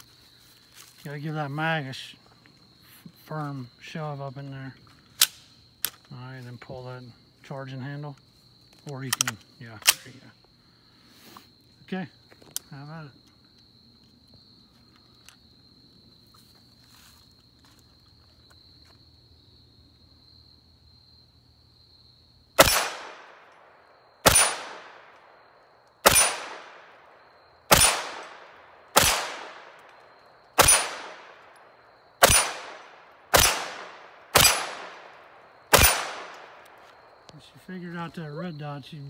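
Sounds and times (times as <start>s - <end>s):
carbine single shots: 22.6s - 25.4s, 26.0s - 36.9s.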